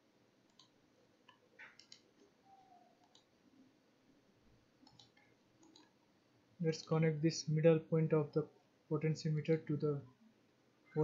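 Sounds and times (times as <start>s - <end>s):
faint computer mouse clicks: 0.5s - 2.2s, 3.0s - 3.3s, 4.8s - 6.0s.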